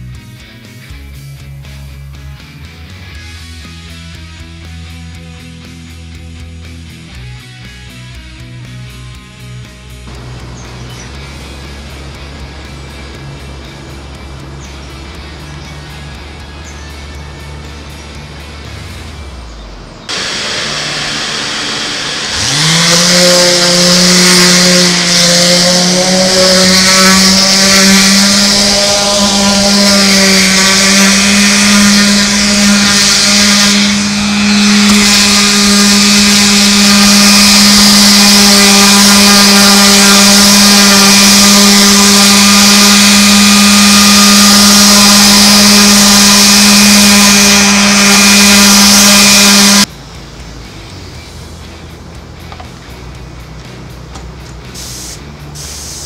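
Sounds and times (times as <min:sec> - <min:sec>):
hiss: 0:20.1 - 0:49.8, 0:54.7 - 0:56.0
motor spinning: 0:20.1 - 0:49.9.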